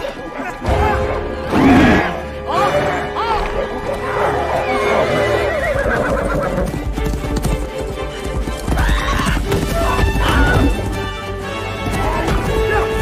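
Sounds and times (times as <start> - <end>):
film background music: 0.0 - 13.0
horse hooves galloping: 4.4 - 13.0
horse whinny: 4.6 - 6.7.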